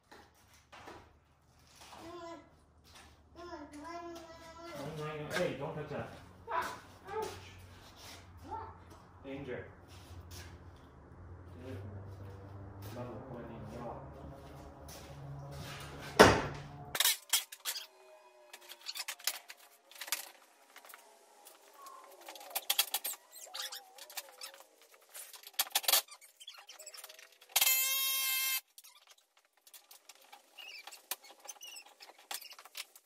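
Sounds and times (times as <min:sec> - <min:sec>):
hand tools clicking and clinking: 0:22.1 - 0:27.9.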